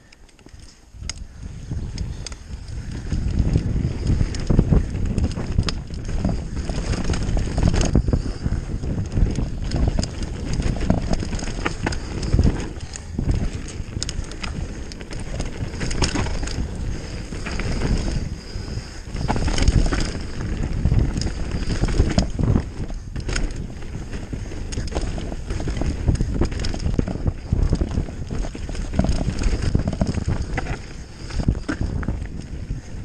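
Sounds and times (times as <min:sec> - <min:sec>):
bike rattles and knocks: 0:00.0 - 0:33.0
bike tyres on dirt: 0:00.0 - 0:33.0
wind rumble on microphone: 0:00.0 - 0:33.0.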